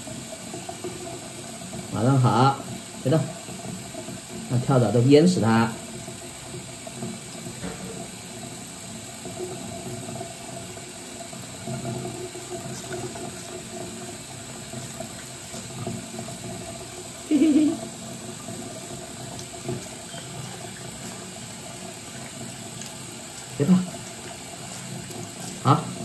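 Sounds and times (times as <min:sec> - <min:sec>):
tap water running into sink: 0:00.0 - 0:26.0
water splashing: 0:09.2 - 0:26.0.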